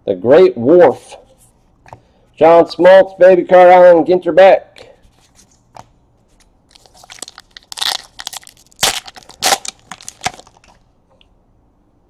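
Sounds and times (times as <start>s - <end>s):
faint card handling: 5.0s - 8.6s
wrapper tearing and crinkling: 6.7s - 10.8s.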